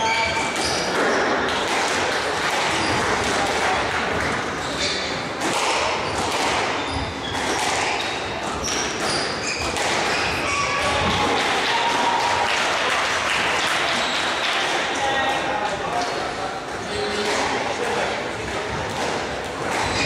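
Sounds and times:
squash ball struck by rackets: 0.4 - 11.4, 17.2 - 20.0
shoes squeaking on wooden floor: 6.0 - 11.0, 19.7 - 20.0.

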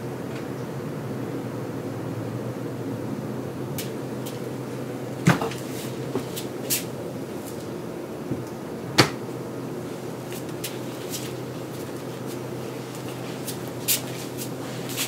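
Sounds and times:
steady low hum: 0.0 - 15.0
refrigerator door closing thud: 5.2 - 5.6, 9.0 - 9.2
refrigerator door knock: 9.0 - 9.2.

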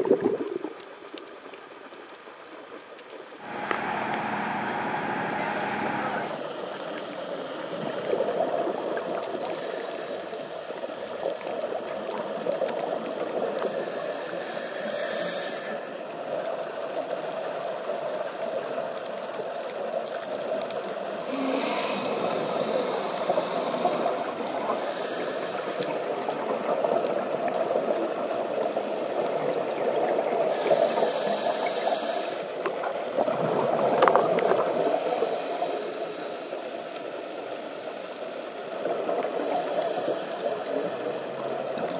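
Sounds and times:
underwater rushing water: 0.0 - 41.9
scuba regulator breathing: 9.4 - 10.6, 13.6 - 16.1, 21.3 - 26.4, 30.5 - 32.6, 34.6 - 36.7, 39.3 - 41.5.

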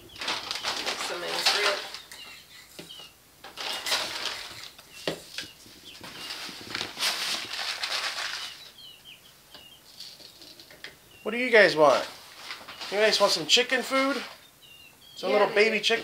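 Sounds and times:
wing-flapping and rustling: 0.0 - 2.6, 3.4 - 8.8, 12.1 - 13.4
chicks peeping: 0.0 - 16.0.

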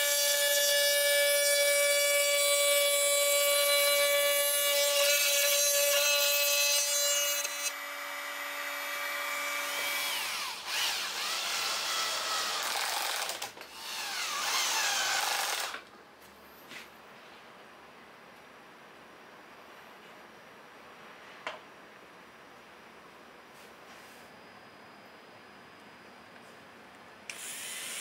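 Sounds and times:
router whine: 6.9 - 15.8, 27.3 - 28.0.

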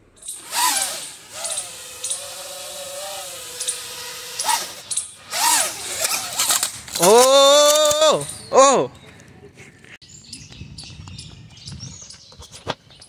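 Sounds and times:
quadcopter motors whining: 0.2 - 8.3.

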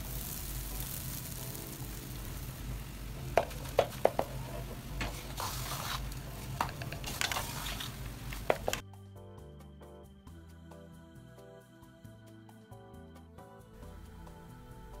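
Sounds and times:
steady low hiss: 0.0 - 15.0
wooden spatula stirring in pot: 0.3 - 8.8.

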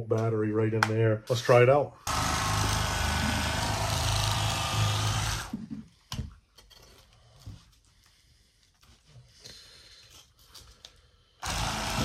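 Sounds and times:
electric fillet knife running: 2.1 - 5.5, 11.4 - 12.0.

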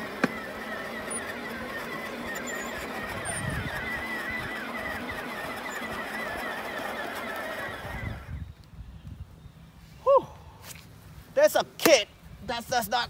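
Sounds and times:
plastic wheels rumbling: 0.0 - 8.5
electric motor whining: 0.0 - 8.6.

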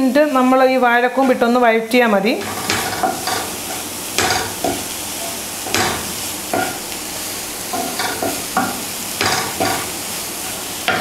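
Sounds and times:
vegetables sizzling in frying pan: 0.0 - 11.0
wooden spatula scraping: 2.4 - 6.9.

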